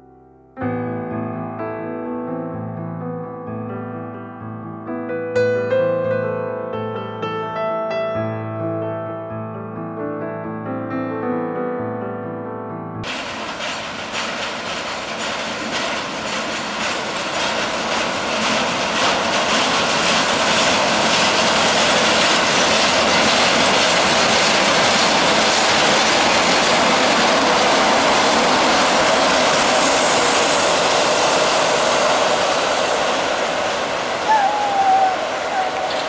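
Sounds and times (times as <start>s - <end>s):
diesel locomotive engine: 13.0s - 36.0s
steel wheels rolling on rails: 13.0s - 36.0s.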